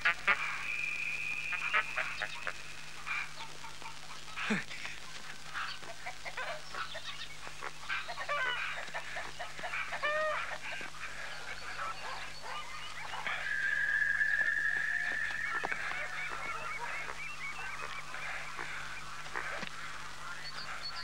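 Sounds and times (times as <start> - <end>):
fowl calling: 0.0 - 21.0
steady high-pitched tone: 11.6 - 19.3.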